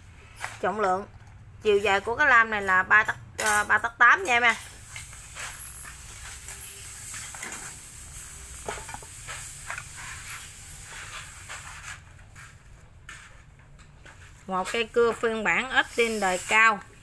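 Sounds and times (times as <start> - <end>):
handling knocks and rustling: 5.0 - 15.4.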